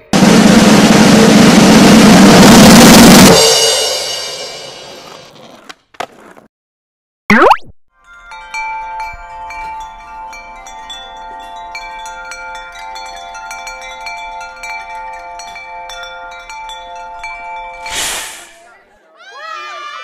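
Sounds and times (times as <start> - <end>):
chimes tinkling: 8.0 - 18.8.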